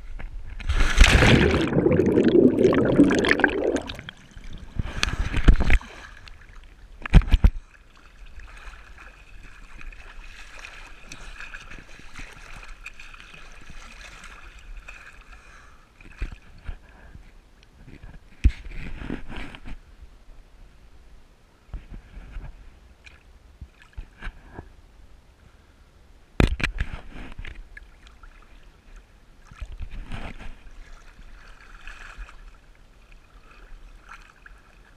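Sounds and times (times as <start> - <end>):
water sloshing against camera: 0.5 - 7.5
water splashing and churning: 0.6 - 7.2, 7.8 - 16.6, 29.4 - 34.9.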